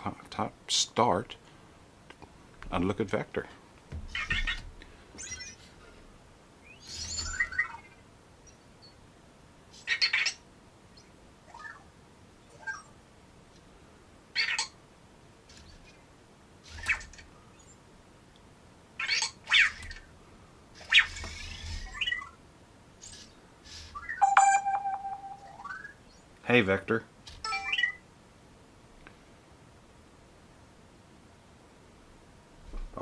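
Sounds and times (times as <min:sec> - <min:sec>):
robot electronic chirps: 0:24.0 - 0:26.0.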